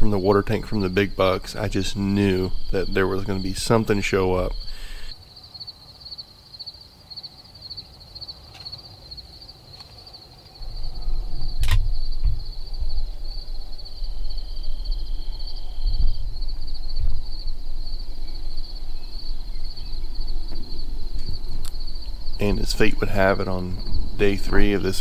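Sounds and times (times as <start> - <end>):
low rumbling noise: 0.0 - 5.2, 10.6 - 25.0
crickets chirping: 0.0 - 25.0
sharp click: 11.6 - 12.4.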